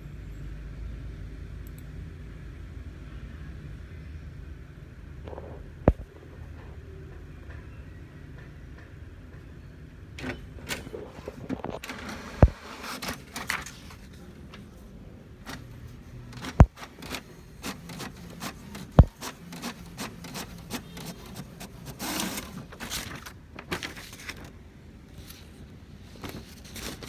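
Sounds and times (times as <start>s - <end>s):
printer clicks and rustles: 10.1s - 14.8s, 15.4s - 27.0s.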